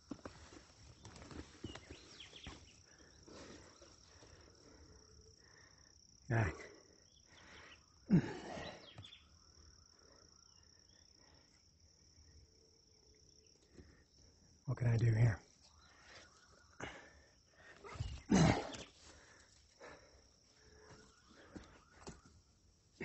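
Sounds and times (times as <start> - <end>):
faint footsteps and rustles: 0.0 - 4.6
insects droning: 0.0 - 23.0.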